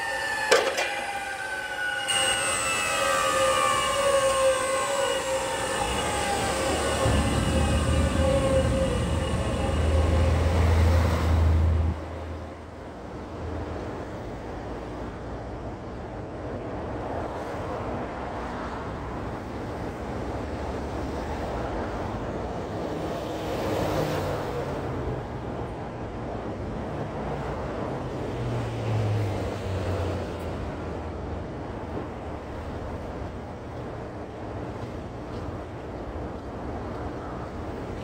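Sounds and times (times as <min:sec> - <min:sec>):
falling tones: 0:00.0 - 0:12.1
steady traffic noise: 0:00.0 - 0:38.0
heavy vehicle engine rumble: 0:05.2 - 0:14.0.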